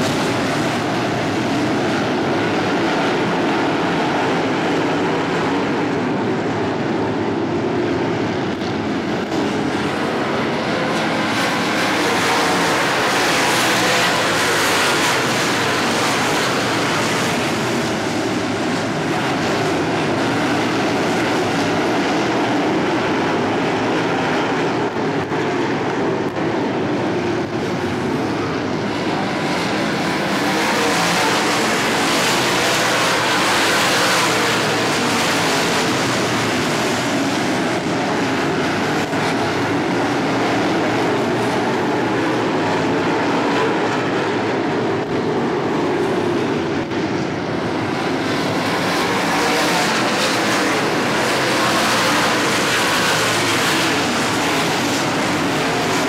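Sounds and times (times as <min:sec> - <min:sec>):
race car engines roaring: 0:00.0 - 0:56.0.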